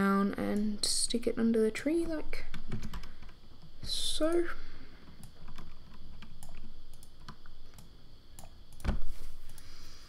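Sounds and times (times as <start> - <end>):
keyboard and mouse clicks: 5.1 - 9.7.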